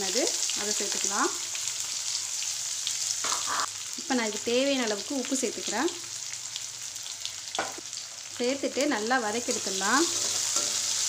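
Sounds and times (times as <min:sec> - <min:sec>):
onions sizzling in hot oil: 0:00.0 - 0:11.0
person's voice: 0:08.4 - 0:10.1.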